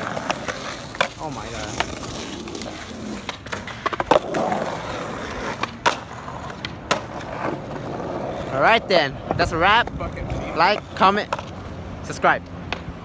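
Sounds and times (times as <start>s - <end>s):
skateboard clacking on ground: 0.0s - 11.8s, 12.4s - 13.0s
skateboard wheels rolling on pavement: 0.0s - 13.0s.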